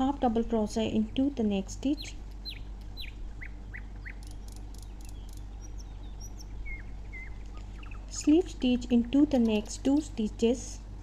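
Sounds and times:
steady low hum: 0.0s - 11.0s
birds chirping: 0.6s - 10.3s
whistled bird notes: 2.0s - 8.3s.

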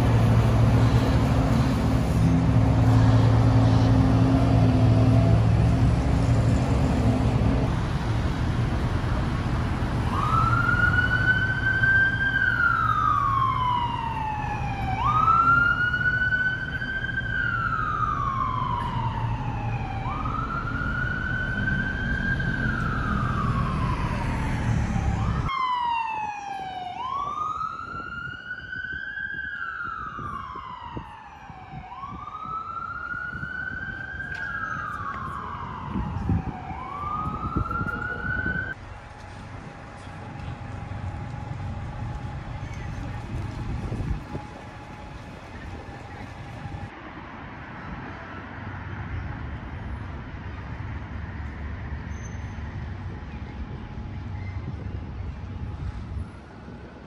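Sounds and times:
city traffic rumble: 0.0s - 57.0s
siren wailing: 10.0s - 38.8s.

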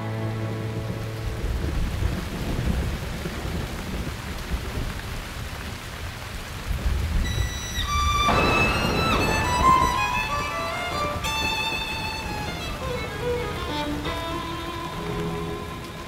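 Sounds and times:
strings: 0.0s - 2.0s, 7.2s - 16.0s
rain hiss: 0.0s - 16.0s
low rolling thunder rumble: 0.4s - 16.0s.

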